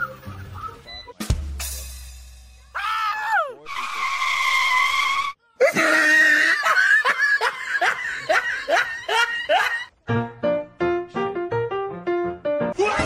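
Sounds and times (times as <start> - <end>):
person laughing: 5.6 - 9.9.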